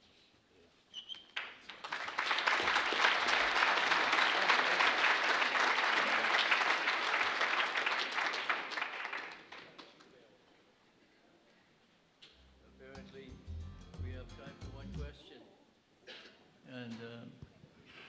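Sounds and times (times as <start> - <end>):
audience applause: 1.6 - 10.0.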